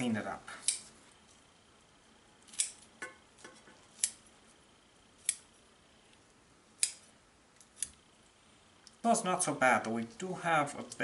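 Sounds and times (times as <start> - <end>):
kitchen shears snipping: 0.6 - 0.9, 2.4 - 4.3, 5.2 - 5.5, 6.8 - 8.0.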